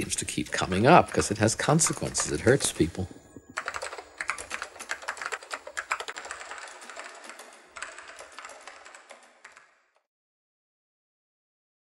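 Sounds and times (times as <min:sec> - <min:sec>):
rapid clatter of small clicks: 0:03.5 - 0:09.7.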